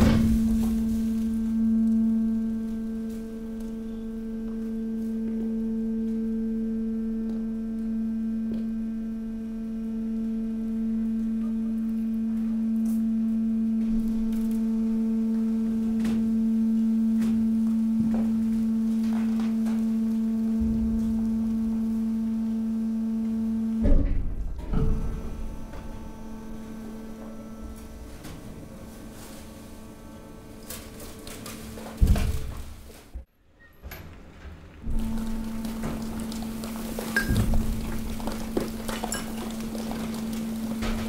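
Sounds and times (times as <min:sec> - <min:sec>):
loud clunk: 0:00.0 - 0:01.2, 0:23.8 - 0:26.3
hydraulic compactor pump humming: 0:00.0 - 0:33.2, 0:34.8 - 0:41.0
cracks and clicks of waste: 0:33.8 - 0:41.0.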